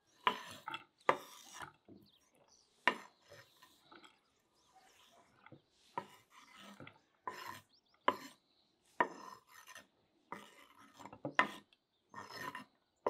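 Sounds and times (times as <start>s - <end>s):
pepper scraped across wooden board: 5.7s - 8.4s, 9.0s - 12.7s.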